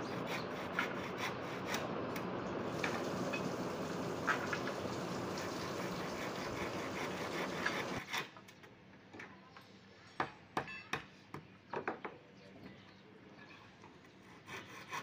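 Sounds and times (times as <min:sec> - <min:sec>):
hand saw cutting wood: 0:00.0 - 0:02.3, 0:05.2 - 0:08.3, 0:14.2 - 0:15.0.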